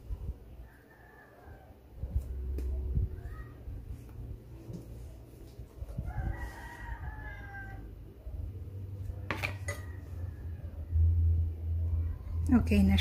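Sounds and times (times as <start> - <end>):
rooster crowing: 0.6 - 1.8, 6.0 - 8.1.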